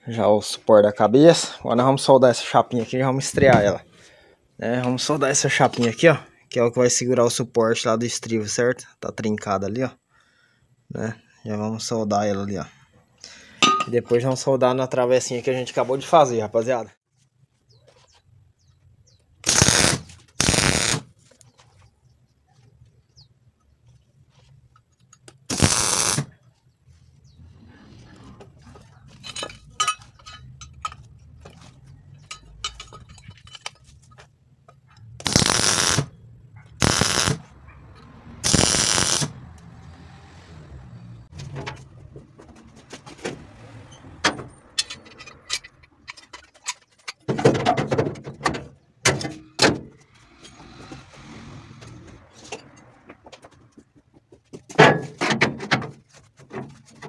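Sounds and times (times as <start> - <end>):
welding arc crackle: 19.4 - 21.1, 25.5 - 26.3, 35.2 - 36.1, 36.8 - 37.5, 38.4 - 39.4
torch and pliers clicks and scrapes: 35.2 - 36.1, 36.8 - 37.4, 38.4 - 39.7.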